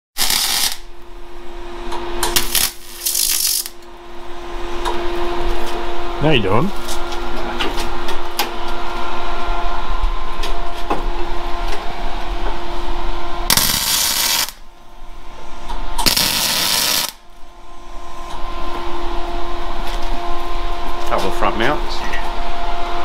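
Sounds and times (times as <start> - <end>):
welder welding: 0.2 - 1.1, 2.2 - 3.9, 13.5 - 14.7, 16.0 - 17.4
steady hum: 0.2 - 23.0.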